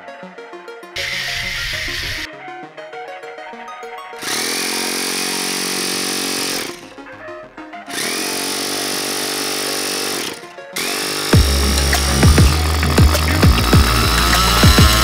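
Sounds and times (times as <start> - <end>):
electric starter cranking engine: 4.2 - 6.9, 7.9 - 15.0.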